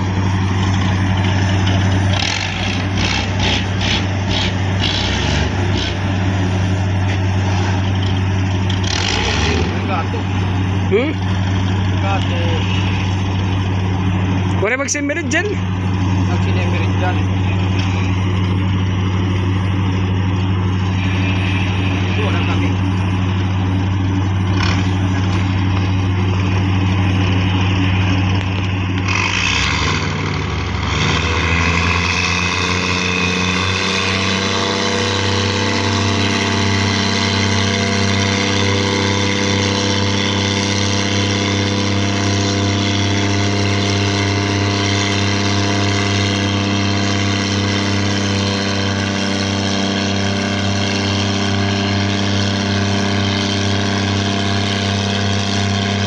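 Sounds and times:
ship diesel engine running: 0.0s - 56.0s
propeller wash churning water: 31.2s - 56.0s.

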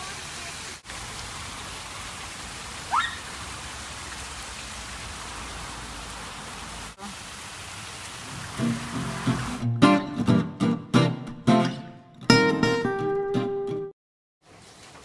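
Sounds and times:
fountain splashing: 0.0s - 9.7s.

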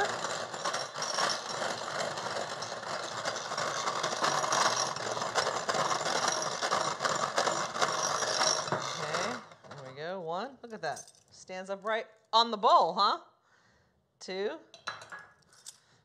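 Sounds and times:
electric mixer running: 0.0s - 9.5s.

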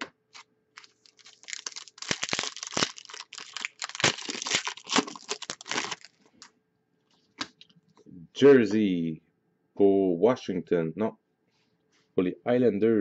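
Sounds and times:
plastic wrapper crinkling: 0.3s - 6.5s.

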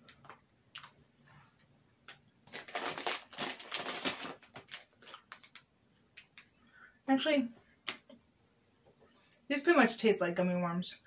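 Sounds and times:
plastic bag crinkling: 2.4s - 5.7s.

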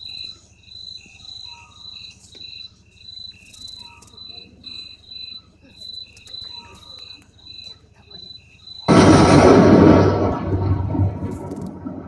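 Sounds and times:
crickets chirping: 0.0s - 12.0s
low hum: 8.9s - 12.0s.

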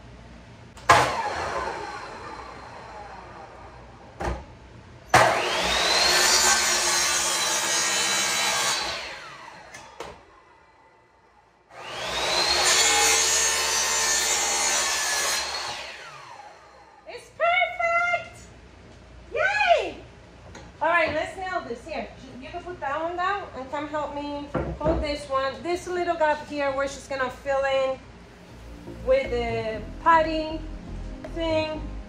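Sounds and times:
miter saw cutting wood: 5.2s - 10.0s, 11.7s - 16.9s.

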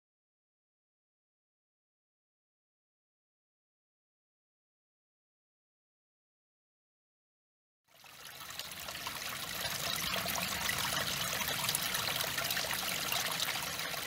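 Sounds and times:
stream trickling: 7.9s - 14.0s.

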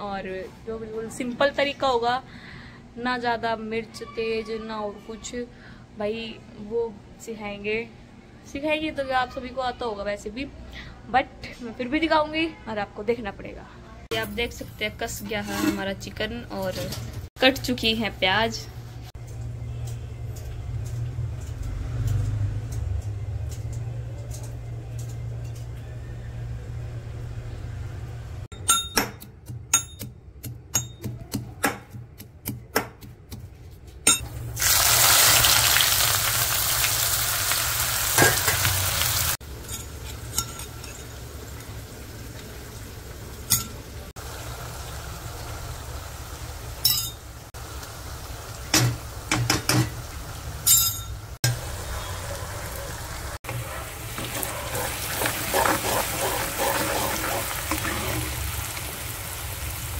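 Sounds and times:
food frying in hot oil: 34.4s - 50.7s, 52.8s - 59.9s.

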